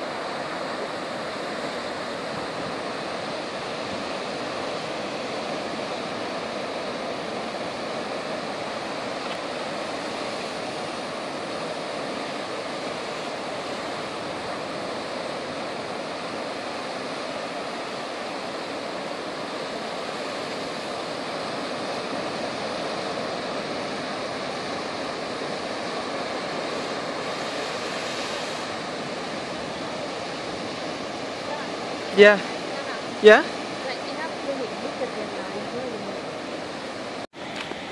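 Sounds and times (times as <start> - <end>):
churning sea water: 0.0 - 37.9
wind: 0.0 - 37.9.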